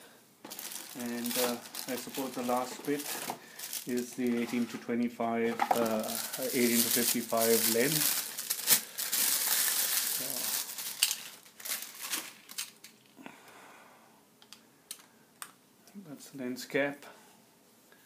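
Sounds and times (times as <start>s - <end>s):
plastic bag crinkling: 0.5s - 4.7s, 5.5s - 13.1s.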